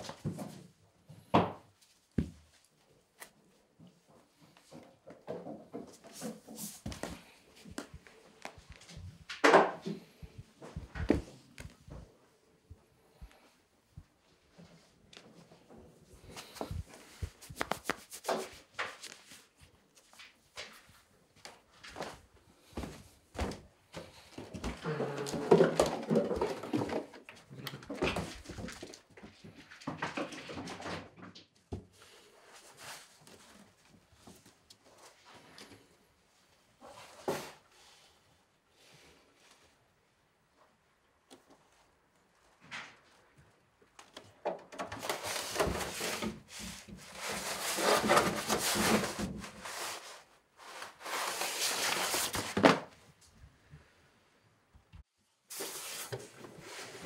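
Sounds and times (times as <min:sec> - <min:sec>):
cloth curtain rustling: 0:45.0 - 0:52.7.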